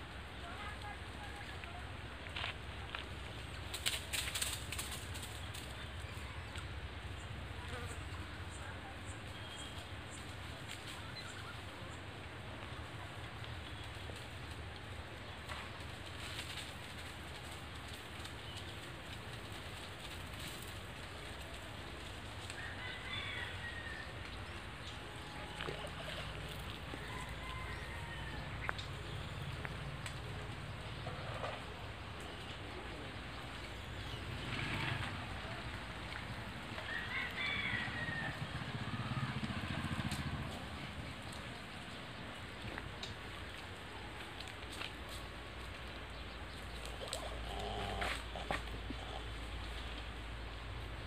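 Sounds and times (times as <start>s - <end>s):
faint crackles: 0.0s - 51.0s
rooster crowing: 22.6s - 24.3s, 26.9s - 28.7s, 36.8s - 39.2s
rustling hiss: 39.2s - 51.0s.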